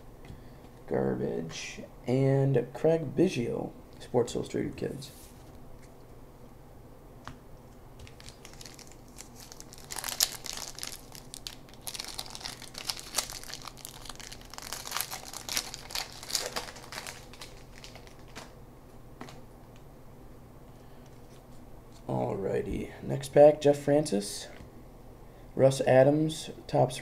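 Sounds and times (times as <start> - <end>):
foil wrapper crinkling: 8.0 - 18.6.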